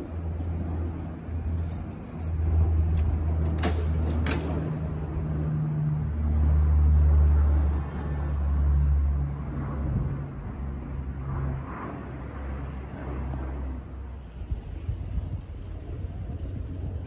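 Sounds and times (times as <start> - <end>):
low rumbling hum: 0.0 - 17.0
metallic clanks of a lever: 1.6 - 4.7.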